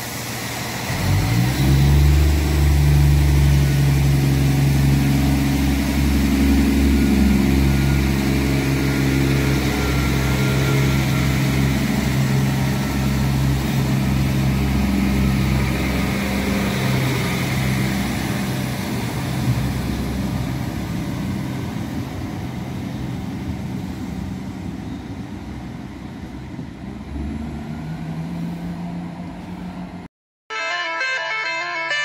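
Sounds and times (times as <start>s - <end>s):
diesel engines droning: 0.0s - 32.0s.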